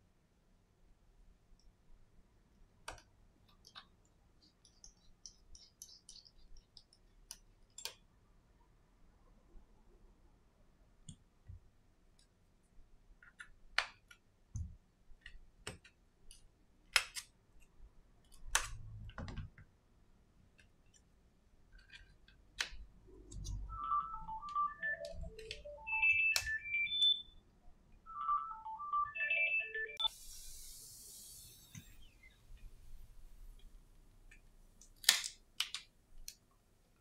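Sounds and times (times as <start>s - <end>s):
phone ringtone melody: 23.6s - 27.4s, 28.0s - 30.1s.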